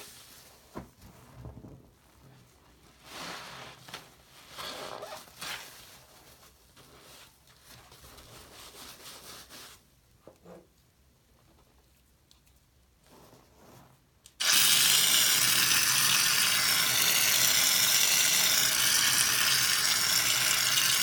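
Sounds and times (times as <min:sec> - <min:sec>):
foam sponge squelching: 0:13.0 - 0:14.2.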